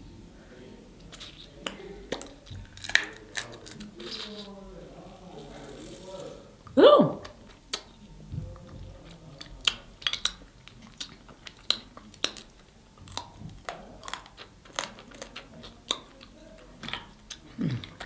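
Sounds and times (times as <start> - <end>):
person chewing: 1.0 - 4.6, 7.2 - 18.0
crab shell cracking: 1.1 - 4.5, 9.4 - 16.2.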